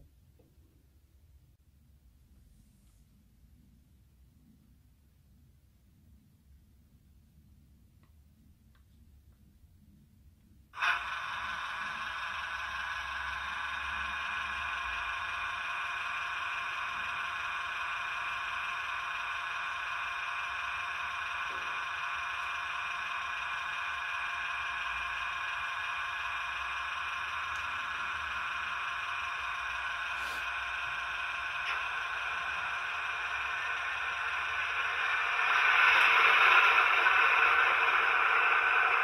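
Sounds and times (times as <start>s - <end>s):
model locomotive running sound: 10.8s - 39.0s.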